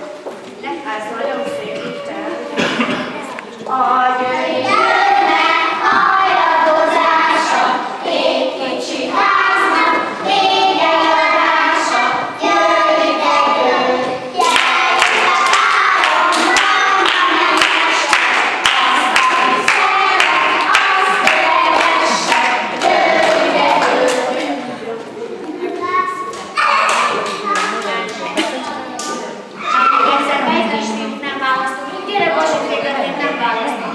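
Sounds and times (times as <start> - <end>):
young children singing: 1.3 - 30.9
hand-clapping on a steady beat: 14.4 - 24.6.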